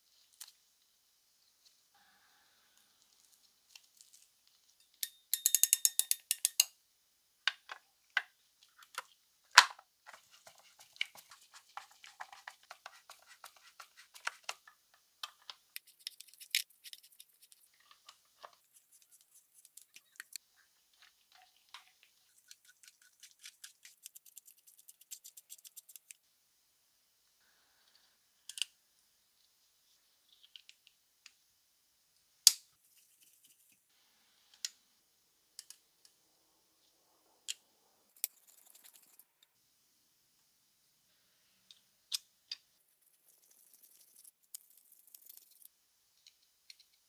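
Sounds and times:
fast fine clicking of tools: 5.0 - 6.7.

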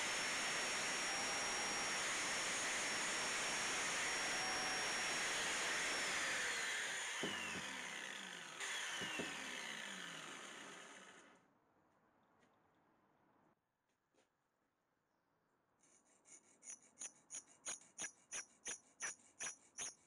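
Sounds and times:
angle grinder whining: 0.0 - 11.3.

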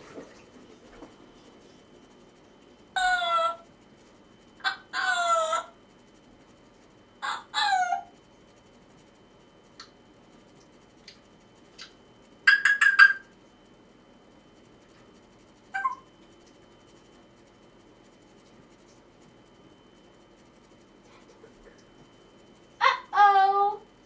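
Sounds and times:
parrot calling loudly: 3.0 - 3.6, 4.6 - 5.8, 7.2 - 8.1, 12.5 - 13.3, 15.8 - 16.0, 22.8 - 23.8.

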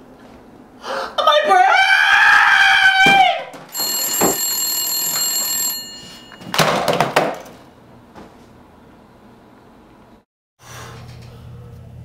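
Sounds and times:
telephone ringing tone: 3.7 - 6.7.

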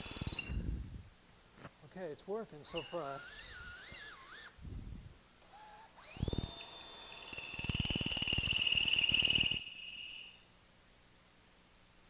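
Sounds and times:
drill boring into wood: 2.7 - 4.6, 5.5 - 10.3.

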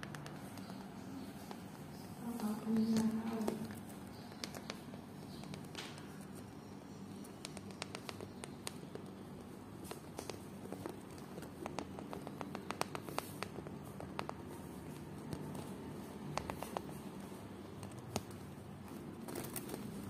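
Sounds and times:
hamster teeth clicking on cage: 10.2 - 14.4.

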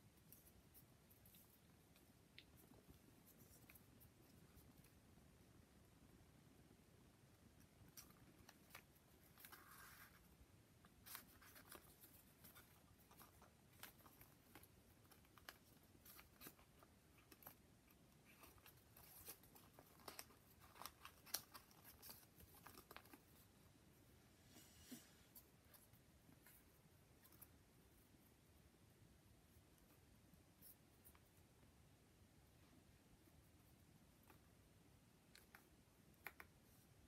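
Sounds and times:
paper ticks and rustles: 11.0 - 23.5.

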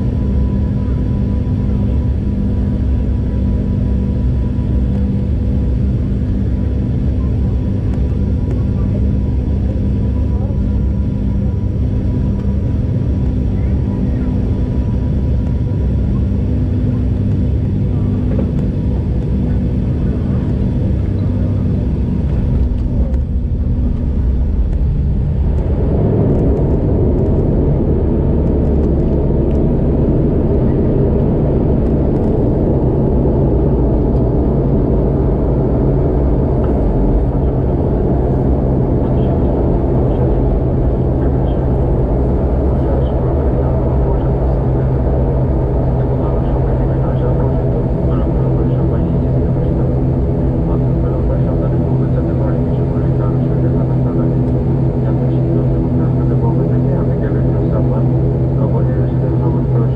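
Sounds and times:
runway rumble: 0.0 - 59.9
turboprop engines droning: 0.0 - 59.9.

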